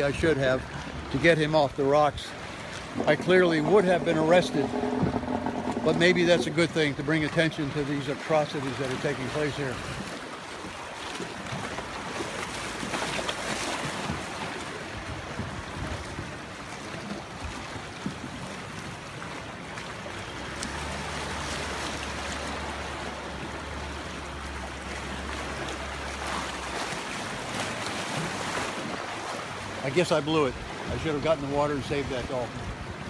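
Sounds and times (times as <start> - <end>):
sea water washing on shore: 0.0 - 33.0
wind on microphone: 2.3 - 7.0, 13.9 - 19.2
steady low drone: 2.9 - 6.7.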